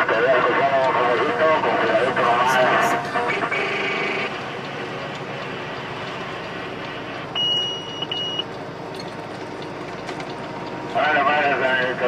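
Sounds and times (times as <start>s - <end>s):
truck engine and road noise: 0.0s - 12.0s
electronic beeps: 7.4s - 8.5s.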